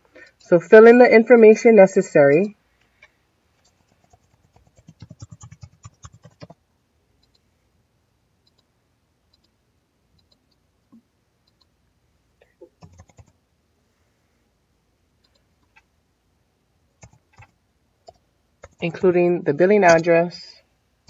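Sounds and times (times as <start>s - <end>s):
computer keyboard typing: 3.6s - 6.6s, 12.7s - 13.4s, 15.2s - 15.9s, 17.0s - 19.1s
faint mouse clicks: 9.3s - 9.6s, 10.2s - 11.7s.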